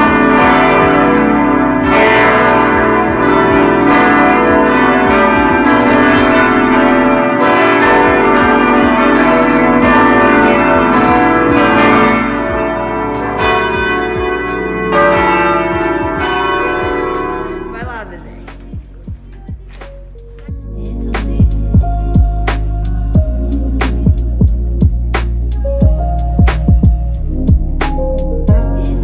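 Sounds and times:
carillon bells ringing: 0.0s - 18.9s.

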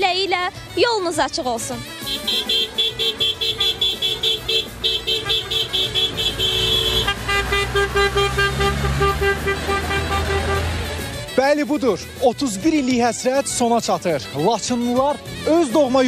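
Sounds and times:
engines rumbling: 0.0s - 16.0s
vehicle horns beeping rapidly: 1.8s - 11.5s
second horn different tone: 2.0s - 11.1s.

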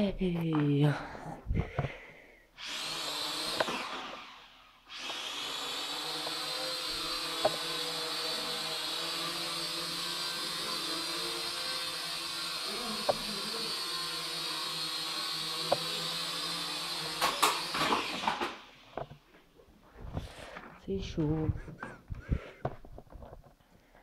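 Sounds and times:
toy drone propellers whining: 2.6s - 19.0s.

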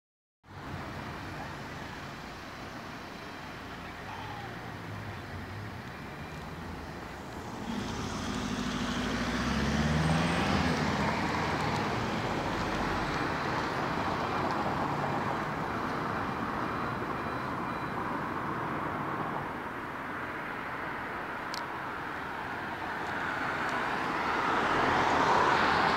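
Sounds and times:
steady traffic noise: 0.4s - 25.9s
vehicle passing: 6.5s - 14.0s.

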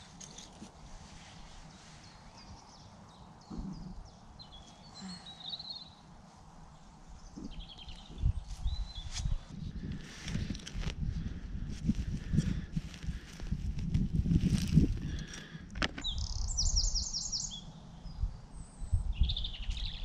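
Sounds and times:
outdoor background noise: 0.0s - 20.0s
small birds chirping and trilling: 1.2s - 10.5s, 14.4s - 20.0s.

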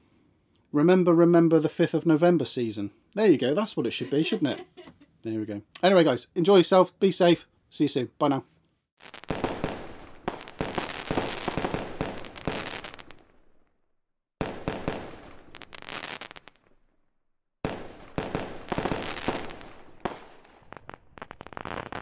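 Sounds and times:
fireworks bangs and crackles: 9.0s - 13.6s, 14.4s - 16.8s, 17.6s - 22.0s.

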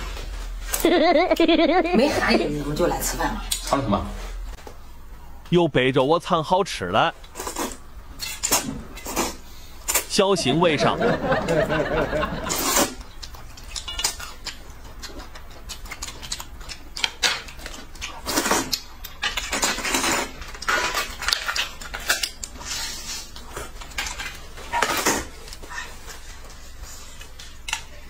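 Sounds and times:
noodles being slurped: 12.4s - 14.6s.

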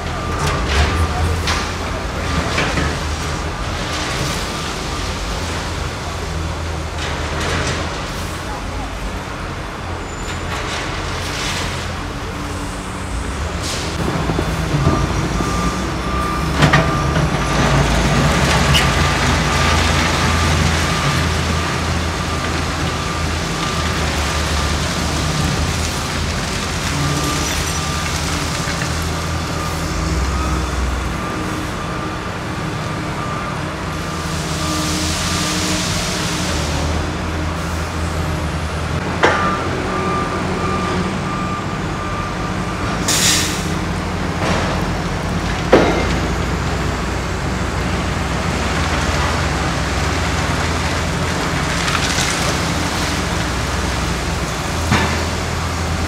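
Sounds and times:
diesel engines running: 0.0s - 56.0s
backup alarm beeping: 14.0s - 25.5s, 39.0s - 43.5s.

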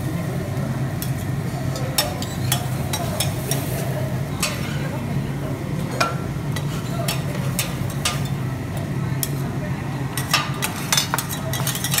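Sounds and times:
metal spatulas scraping griddle: 10.2s - 12.0s.

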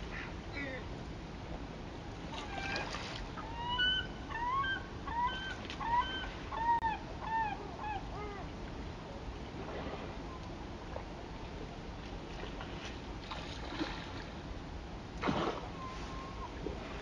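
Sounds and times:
low background hiss: 0.0s - 17.0s
bird calling: 0.1s - 0.9s, 3.4s - 8.4s.

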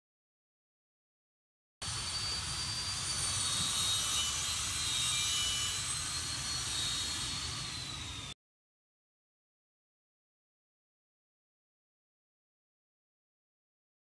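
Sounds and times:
high hiss: 1.8s - 8.3s
faint thin high whines: 1.8s - 8.4s.

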